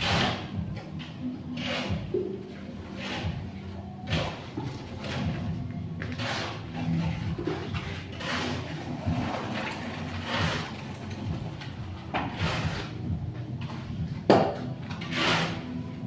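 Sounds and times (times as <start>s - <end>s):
tool scraping through wet concrete: 0.0s - 13.1s, 14.9s - 16.0s.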